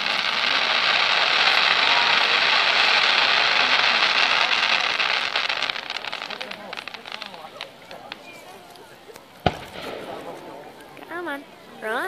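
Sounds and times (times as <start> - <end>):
fireworks crackling and hissing: 0.0 - 12.0.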